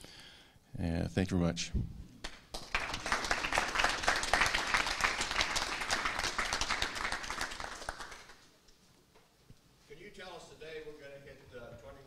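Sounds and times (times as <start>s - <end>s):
audience applauding: 2.3s - 8.5s.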